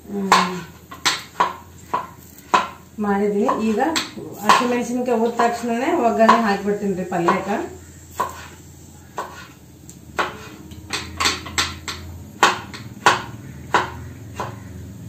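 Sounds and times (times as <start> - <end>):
knife chopping on wooden board: 0.3 - 2.8, 8.1 - 8.5, 9.2 - 9.5, 10.2 - 14.7.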